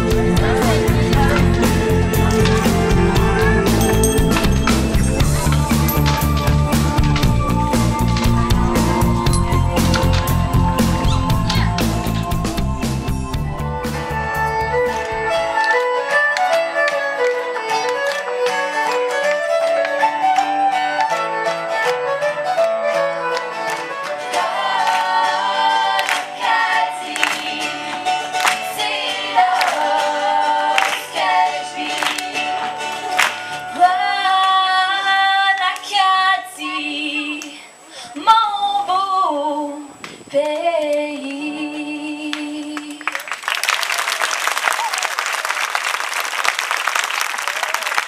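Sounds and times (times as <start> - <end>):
female vocal group singing: 0.0 - 4.1, 5.2 - 13.8, 24.2 - 43.2
instrumental accompaniment: 0.0 - 33.9.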